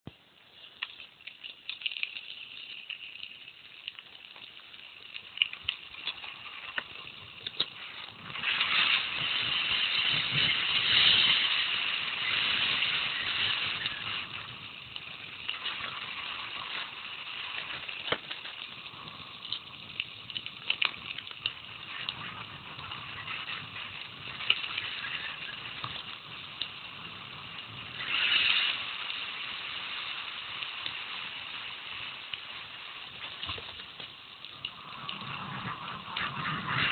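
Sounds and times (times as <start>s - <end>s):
bike rattling: 5.2s - 36.9s
rush of noise: 6.6s - 20.0s, 21.5s - 36.9s.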